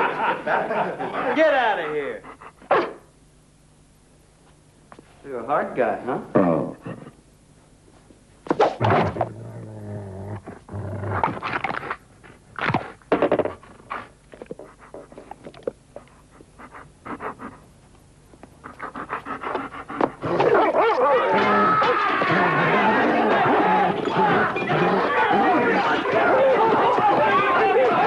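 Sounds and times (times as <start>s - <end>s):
dog barking: 2.7s - 3.0s
dog growling: 6.3s - 7.2s, 8.8s - 12.0s, 18.7s - 26.5s.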